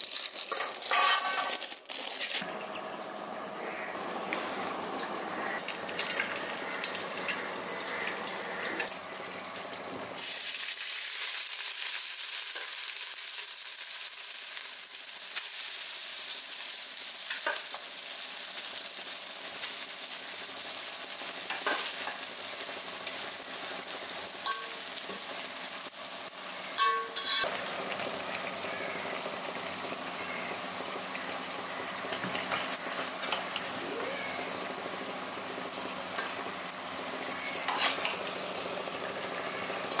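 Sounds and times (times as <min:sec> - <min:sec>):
food sizzling in hot fat: 0:00.0 - 0:02.4, 0:04.2 - 0:40.0
metal spoon clinking on pot: 0:26.8 - 0:27.4.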